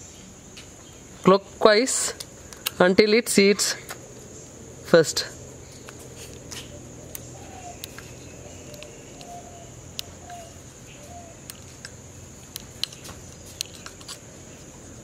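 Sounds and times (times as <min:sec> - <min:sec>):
insect drone: 0:00.0 - 0:15.0
bird chirps: 0:05.6 - 0:11.6.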